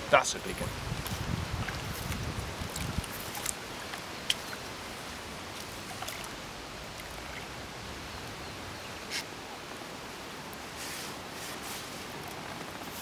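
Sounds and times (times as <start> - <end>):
wind: 0.0 - 13.0
small waves lapping: 0.1 - 13.0.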